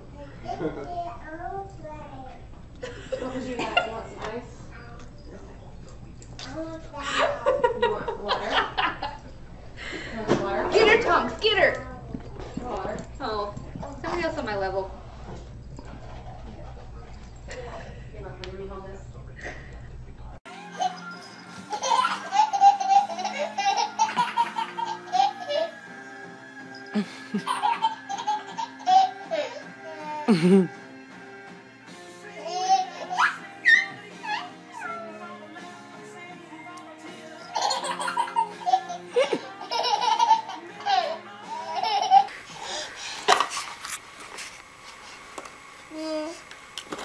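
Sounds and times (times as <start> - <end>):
background music with held notes: 20.5 - 43.6
baby laughing and squealing: 20.7 - 25.8, 32.4 - 34.9, 37.4 - 42.9.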